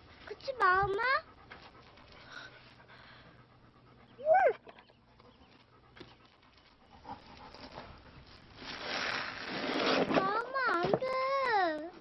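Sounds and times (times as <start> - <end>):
dog whining: 4.1 - 4.8.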